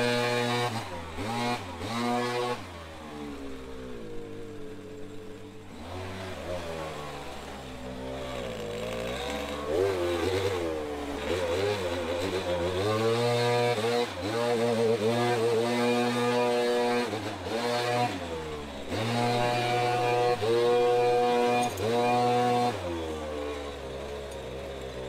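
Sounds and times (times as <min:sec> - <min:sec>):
leaf blower engine revving: 0:00.0 - 0:25.0.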